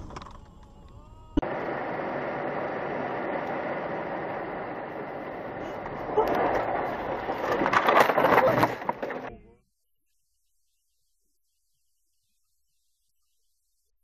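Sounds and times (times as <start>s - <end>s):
car road and engine noise: 0.0s - 9.3s.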